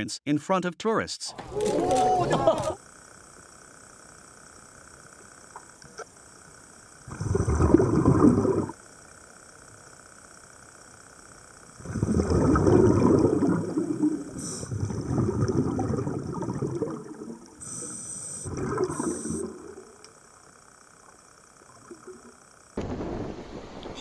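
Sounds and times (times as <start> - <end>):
low steady hum: 1.4 - 24.0
underwater bubbles gurgling: 7.0 - 8.8, 11.8 - 20.2, 21.6 - 22.4.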